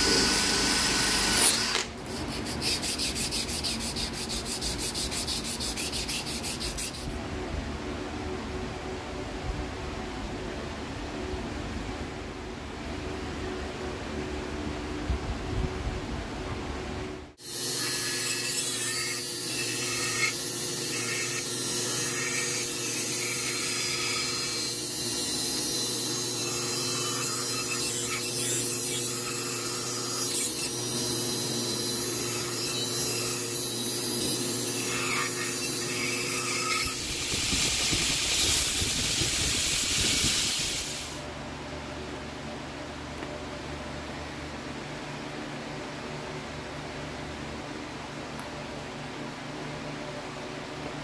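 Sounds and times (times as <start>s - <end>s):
bandsaw cutting wood: 0.0s - 7.1s, 17.4s - 41.2s
belt grinder sanding wood: 0.0s - 7.2s, 17.4s - 41.2s.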